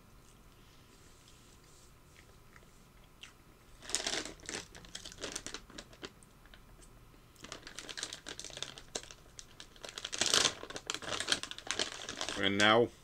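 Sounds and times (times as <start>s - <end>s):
plastic snack bag crinkling: 3.7s - 12.8s.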